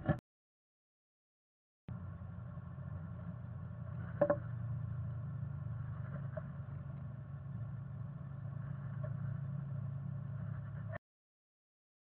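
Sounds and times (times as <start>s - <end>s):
steady low hum: 1.9s - 11.0s.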